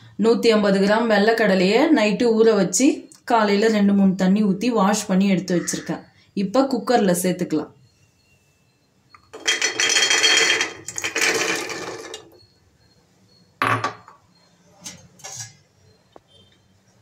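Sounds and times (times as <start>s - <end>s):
chickpeas rattling onto metal: 9.3s - 12.3s.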